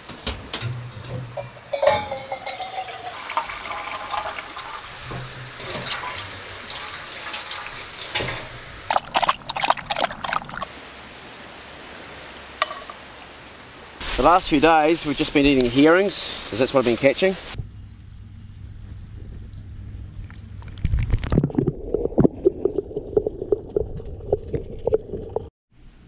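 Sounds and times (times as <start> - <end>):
water running into a metal pan: 1.4 - 10.7
tap and pan clanks and squeaks: 5.0 - 6.4.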